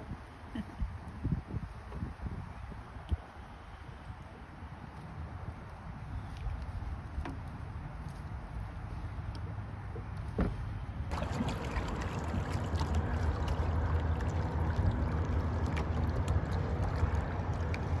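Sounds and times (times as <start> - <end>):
wind rumbling on microphone: 0.0 - 18.0
water lapping against kayak: 11.1 - 18.0.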